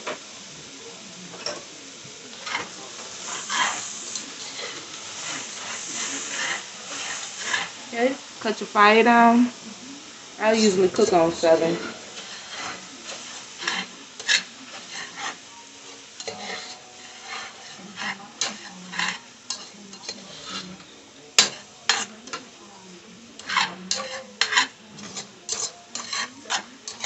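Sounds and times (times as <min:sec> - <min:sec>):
low sizzle: 0:00.0 - 0:27.0
spoon scraping and clacking in pot: 0:02.4 - 0:07.8, 0:10.6 - 0:15.4, 0:16.2 - 0:22.5, 0:23.4 - 0:27.0.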